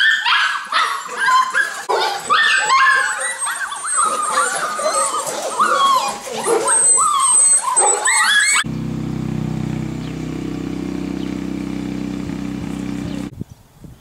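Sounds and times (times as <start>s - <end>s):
puppies whimpering and yelping: 0.0s - 8.7s
low engine drone: 8.6s - 13.3s.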